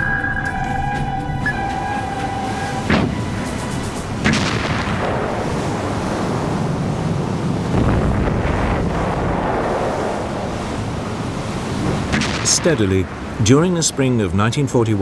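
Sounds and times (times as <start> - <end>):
heavy sea rushing: 0.0 - 15.0
wind: 0.0 - 15.0
explosion bang: 4.2 - 5.5.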